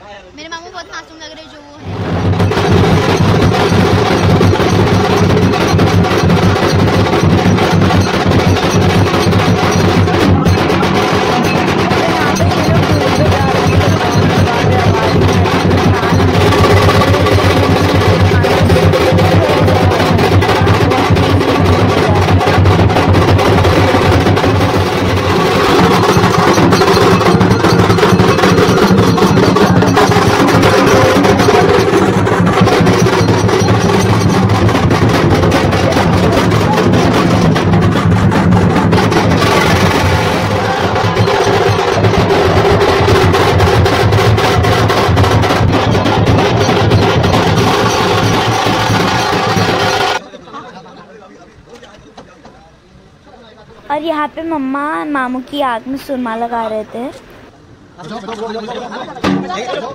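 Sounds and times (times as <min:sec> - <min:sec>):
fast loud drums: 0:00.6 - 0:50.2.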